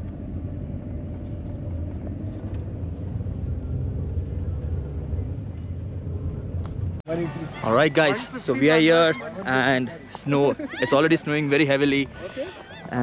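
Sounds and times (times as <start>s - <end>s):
car rumble on wet road: 0.0s - 7.0s.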